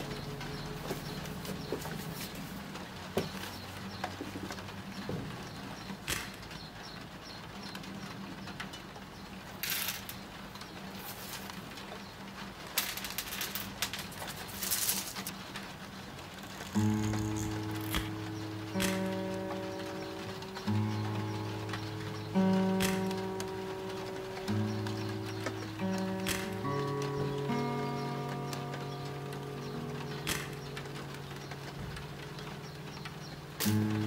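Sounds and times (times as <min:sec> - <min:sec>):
coffee beans rattling on table: 0:09.6 - 0:10.2, 0:11.0 - 0:11.6, 0:12.8 - 0:15.3
small clicks: 0:16.3 - 0:34.0.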